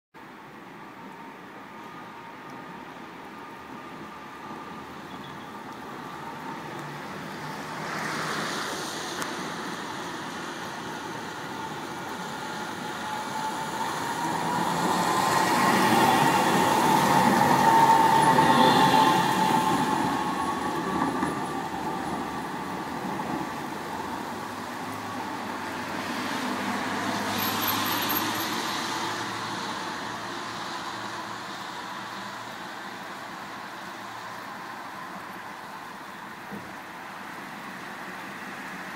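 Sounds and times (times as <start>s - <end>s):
tram electric drive whining: 9.2s - 25.4s
steel wheels rumbling on rails: 9.4s - 24.4s.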